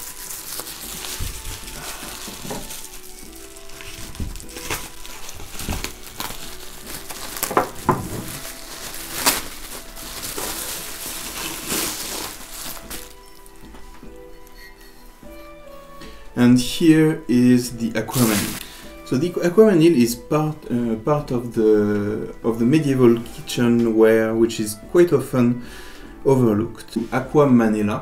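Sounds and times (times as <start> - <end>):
bubble wrap crinkling: 0.0 - 15.0, 17.6 - 19.2
soft background music: 0.0 - 28.0.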